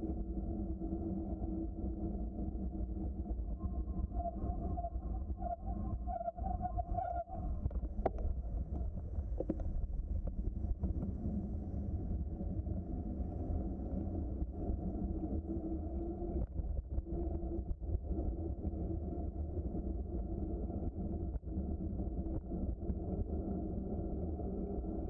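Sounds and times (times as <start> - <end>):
wind noise on microphone: 0.0 - 25.0.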